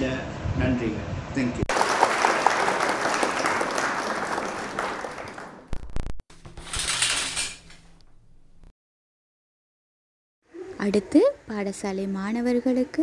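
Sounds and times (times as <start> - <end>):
applause: 1.7 - 5.9.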